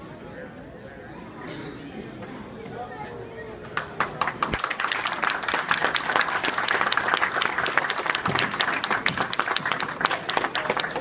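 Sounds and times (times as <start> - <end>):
spectators applauding: 3.8 - 11.0.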